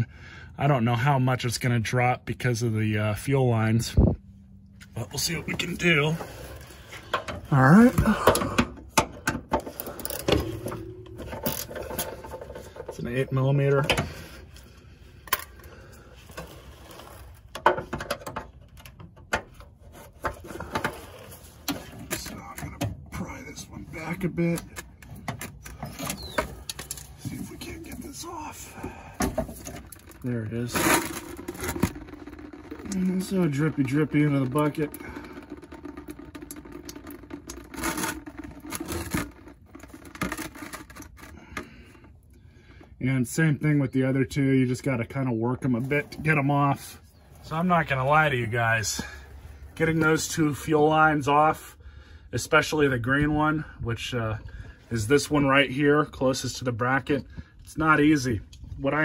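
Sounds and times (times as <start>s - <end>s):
fuel dripping into a bucket: 4.5s - 23.2s, 24.2s - 43.0s.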